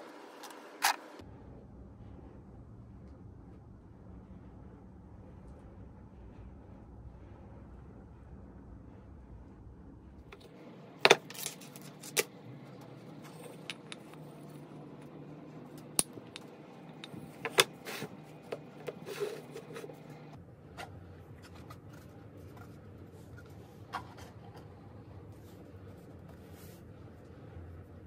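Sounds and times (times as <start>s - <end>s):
lamp parts knocking and clicking: 10.4s - 12.3s, 13.2s - 15.1s, 15.7s - 20.2s.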